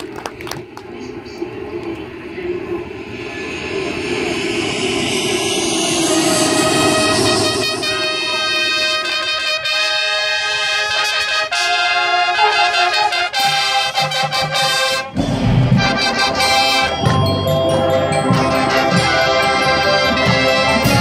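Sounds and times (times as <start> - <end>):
brass sustained chords: 4.4 - 21.0
low brass and drums: 6.9 - 17.3, 18.3 - 21.0.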